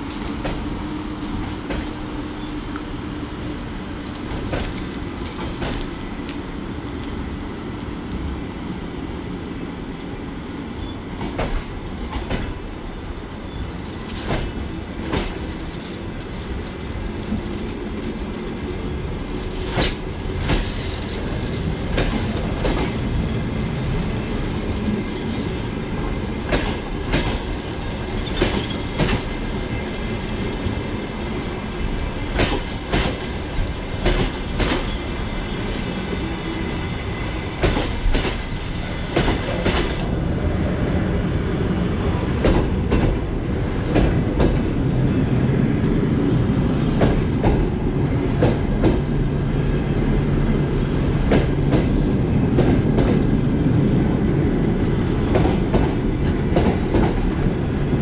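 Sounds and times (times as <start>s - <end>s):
train wheels clacking over rail joints: 0.0s - 7.4s, 11.2s - 12.6s, 13.8s - 36.4s, 37.3s - 40.1s, 46.9s - 49.1s, 51.2s - 53.4s, 55.2s - 57.6s
train rumble: 0.0s - 58.0s.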